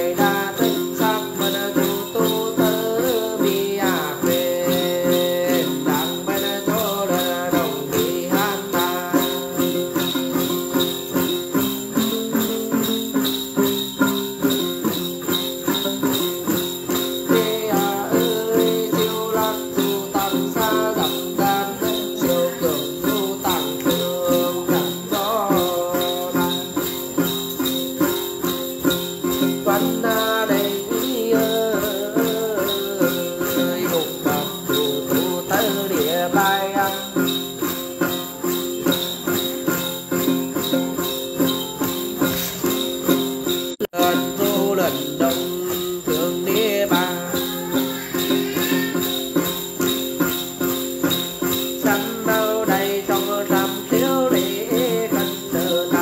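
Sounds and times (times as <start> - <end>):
jingle bells shaken: 0.0 - 56.0
person singing: 0.0 - 56.0
plucked gourd lute: 0.0 - 56.0.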